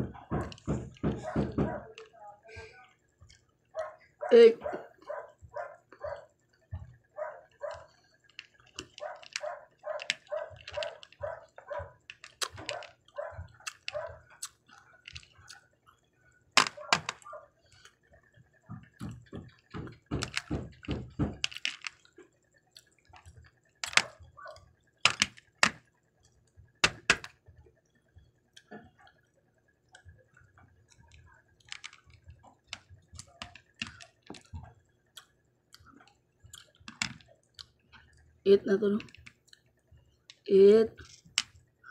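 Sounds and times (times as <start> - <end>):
dull knocks: 0.0 - 1.9, 18.7 - 21.5
chopsticks clicking on candies: 7.6 - 15.6, 18.9 - 22.1, 23.2 - 25.8, 31.0 - 34.6, 35.2 - 38.1.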